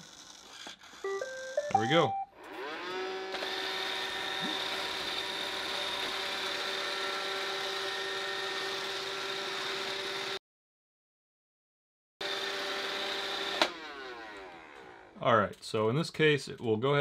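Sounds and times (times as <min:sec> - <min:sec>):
robot vacuum whirring: 0:02.4 - 0:08.4.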